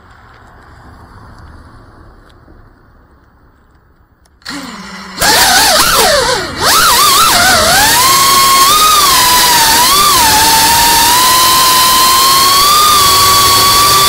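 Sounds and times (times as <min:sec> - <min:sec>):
faint background noise: 0:00.0 - 0:05.2
drone motors whining: 0:04.4 - 0:14.0.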